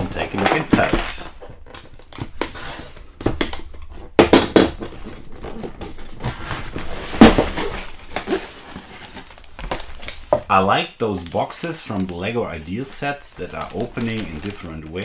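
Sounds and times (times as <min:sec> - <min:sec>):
cardboard box knocks and rattles: 0:04.1 - 0:10.5.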